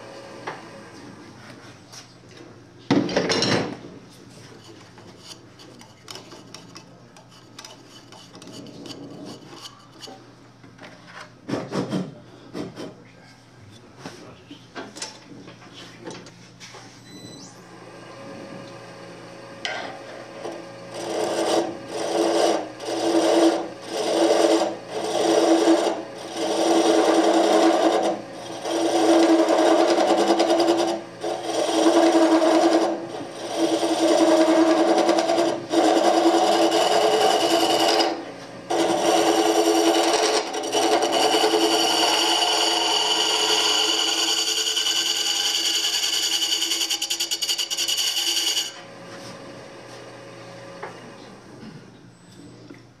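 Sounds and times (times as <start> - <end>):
lathe tool cutting wood: 20.9 - 48.8.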